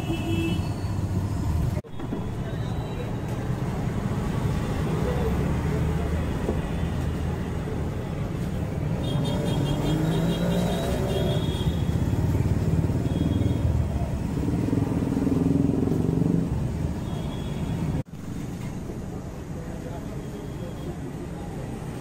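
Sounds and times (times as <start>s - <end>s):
street traffic rumble: 0.0s - 22.0s
engines passing: 0.8s - 17.1s.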